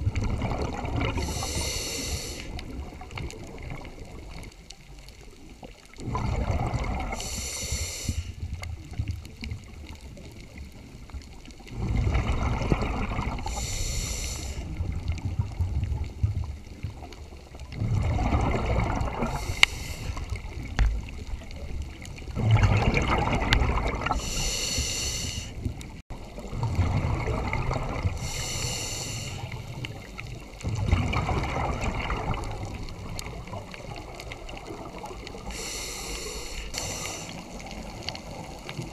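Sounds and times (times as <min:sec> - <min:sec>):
diver breathing through regulator: 0:01.1 - 0:02.6, 0:07.1 - 0:08.4, 0:13.4 - 0:14.8, 0:19.2 - 0:20.5, 0:24.1 - 0:25.6, 0:28.2 - 0:29.8, 0:35.3 - 0:38.0.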